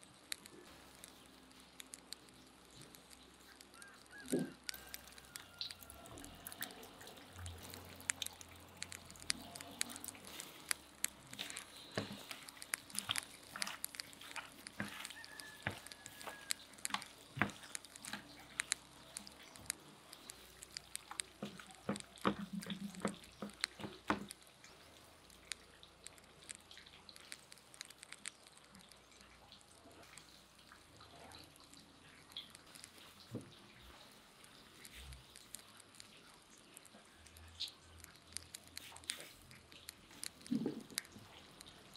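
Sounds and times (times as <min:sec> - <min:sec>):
hands squelching meat in marinade: 0:03.4 - 0:26.1.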